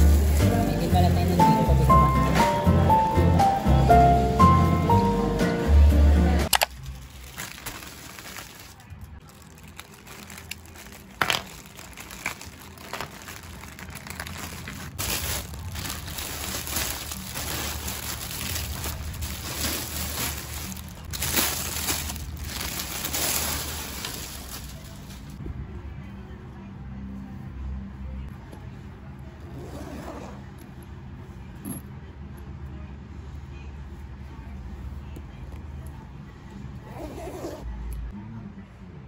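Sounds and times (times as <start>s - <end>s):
plastic packaging crinkling: 6.5s - 25.4s.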